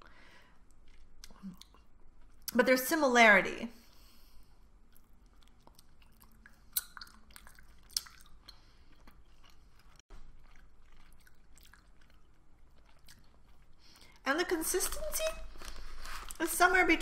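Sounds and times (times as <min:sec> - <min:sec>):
person chewing gummy candy: 0:00.5 - 0:02.5, 0:03.9 - 0:14.2
wet sticky mouth clicks: 0:00.7 - 0:02.6, 0:04.9 - 0:14.2.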